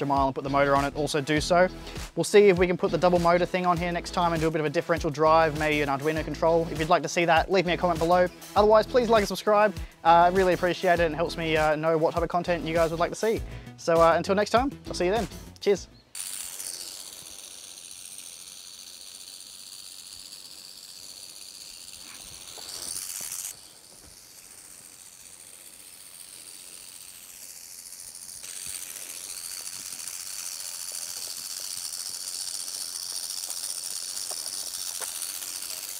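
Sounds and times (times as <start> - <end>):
shrill insect chorus: 16.2 - 35.9.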